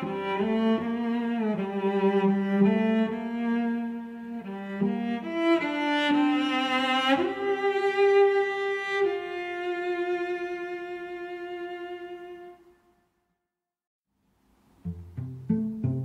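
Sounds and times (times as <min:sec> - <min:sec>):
lullaby on bowed strings: 0:00.0 - 0:12.6.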